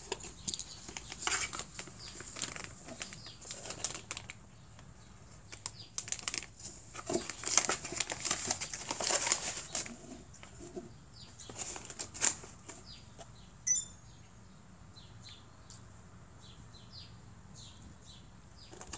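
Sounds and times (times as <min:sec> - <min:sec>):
cardboard box rustling: 0:00.0 - 0:04.2, 0:06.0 - 0:10.8, 0:11.4 - 0:12.8
tissue paper crinkling: 0:00.6 - 0:04.4, 0:05.6 - 0:10.2, 0:11.5 - 0:12.7
brief high chirp: 0:13.7 - 0:14.1.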